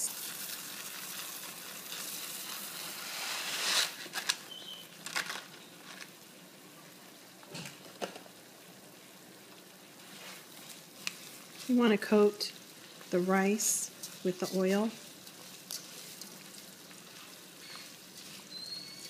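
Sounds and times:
rice pouring into a pan: 0:00.0 - 0:05.5
oil and onions sizzling: 0:00.0 - 0:19.0.

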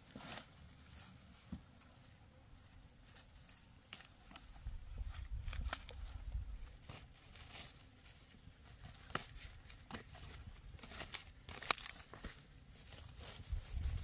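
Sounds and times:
rustling and crackling: 0:03.0 - 0:14.0.

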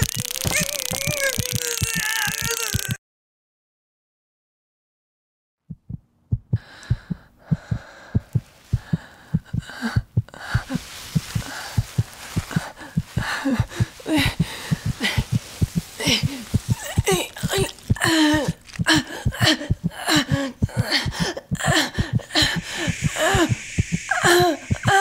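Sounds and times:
fast heartbeat thumps: 0:05.7 - 0:25.0
hiss: 0:22.4 - 0:25.0
rising-and-falling cries: 0:22.7 - 0:25.0.

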